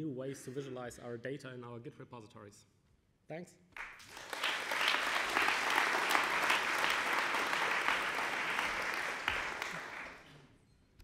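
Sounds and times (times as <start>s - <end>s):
audience applauding: 3.8s - 10.3s.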